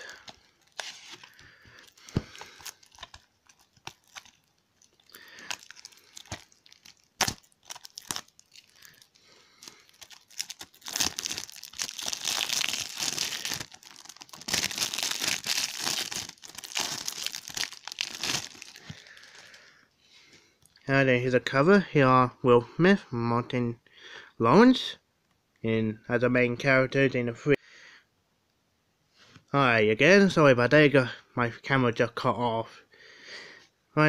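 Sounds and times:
plastic wrap crinkling and tearing: 0.0s - 19.6s.

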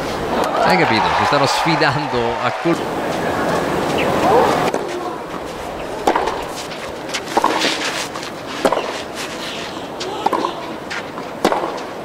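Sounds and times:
tennis ball hit by rackets: 6.0s - 9.0s, 10.2s - 11.9s.

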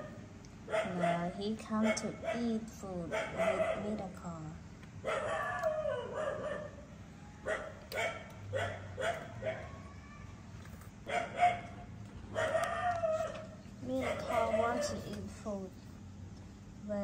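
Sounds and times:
dog yipping: 3.1s - 3.9s, 5.0s - 6.8s, 7.4s - 10.0s, 11.1s - 15.0s.

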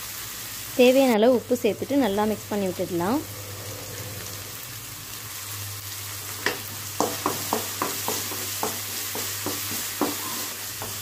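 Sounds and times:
food sizzling in oil: 0.0s - 11.0s
spatula knocking against pan: 6.4s - 11.0s.

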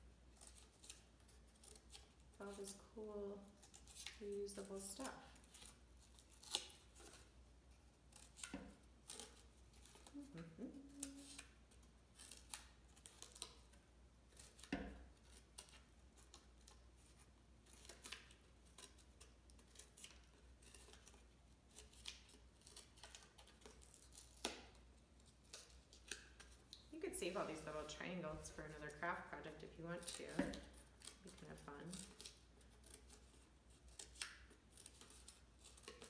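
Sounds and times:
scissors snipping cardboard: 30.0s - 36.0s.

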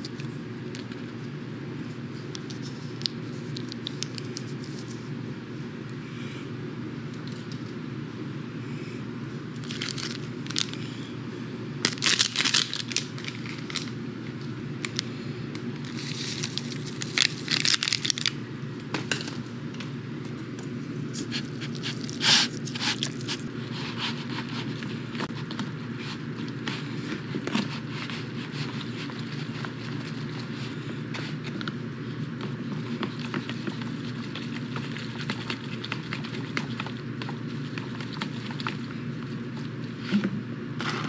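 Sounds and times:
steady low hum: 0.0s - 41.0s
foil packets crinkling: 9.6s - 10.8s, 11.8s - 14.0s, 15.8s - 18.4s, 21.2s - 23.5s
packets being torn open: 9.6s - 10.8s, 11.8s - 13.9s, 15.9s - 18.4s
noodles stirred in plastic container: 21.1s - 40.2s.

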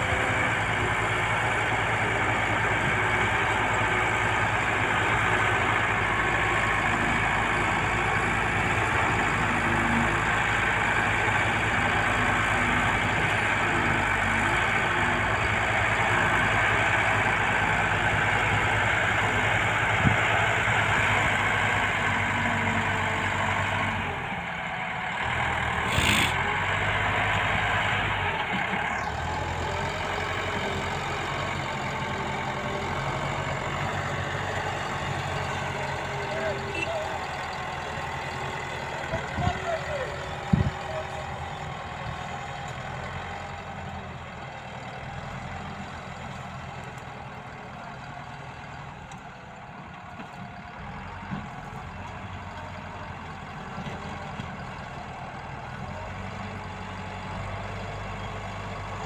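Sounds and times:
diesel engine running: 0.0s - 59.0s
blade pushing soil: 25.7s - 26.6s.

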